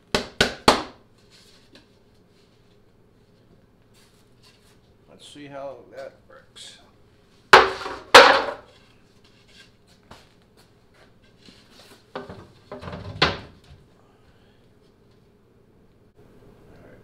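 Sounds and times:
fibreboard panels knocking together: 0:07.5 - 0:08.7.

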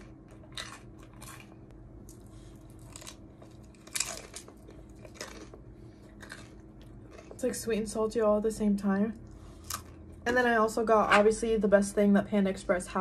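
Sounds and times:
crunchy chewing: 0:00.0 - 0:07.5, 0:09.3 - 0:10.2.

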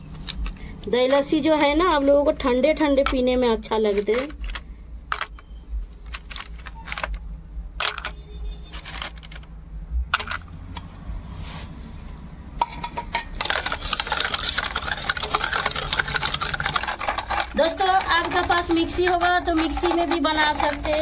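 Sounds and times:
ice cubes knocking on steel pot: 0:12.7 - 0:21.0
ice rattling in churned pot: 0:12.8 - 0:21.0.

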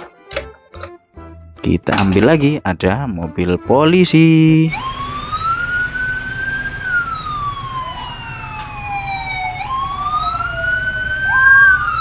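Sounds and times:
police siren wailing: 0:04.5 - 0:12.0
second siren wail: 0:04.7 - 0:12.0.

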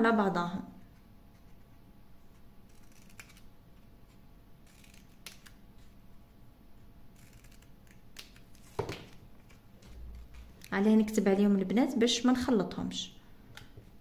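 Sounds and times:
scissors snipping paper: 0:02.3 - 0:05.9, 0:07.1 - 0:09.6.

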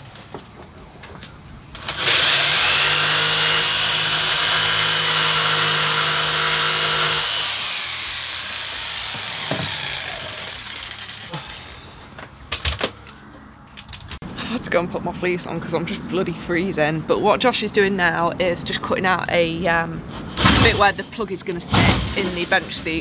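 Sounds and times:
electric jigsaw cutting wood: 0:01.8 - 0:12.0
sharp knocks: 0:09.0 - 0:10.0.

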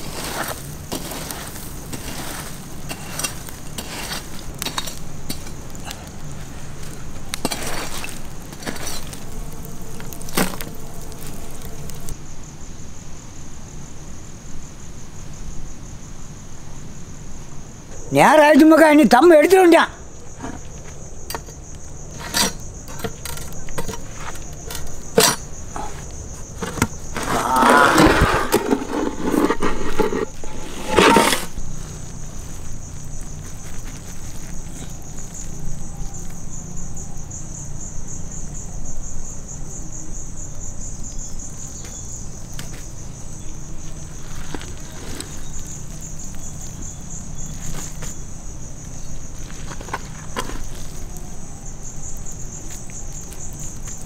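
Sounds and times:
ladle scraping rice in pot: 0:00.0 - 0:05.9, 0:07.4 - 0:09.3, 0:26.6 - 0:31.6
insects chirring: 0:00.0 - 0:54.0.

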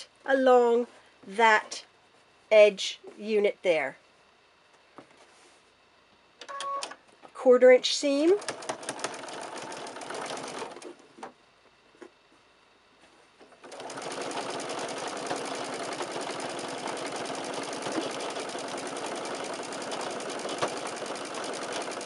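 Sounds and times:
electric sewing machine stitching: 0:08.3 - 0:11.0, 0:13.6 - 0:22.0.

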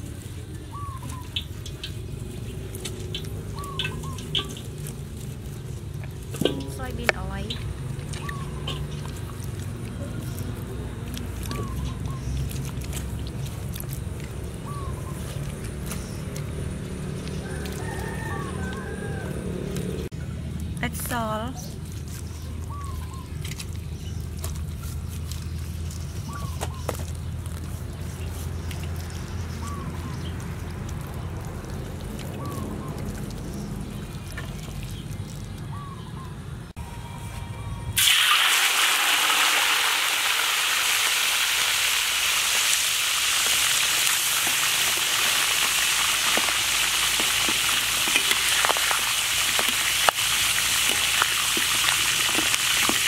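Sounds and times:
hands rubbing wet meat: 0:00.0 - 0:19.8, 0:21.6 - 0:36.1
hands rubbing meat: 0:21.7 - 0:35.7.

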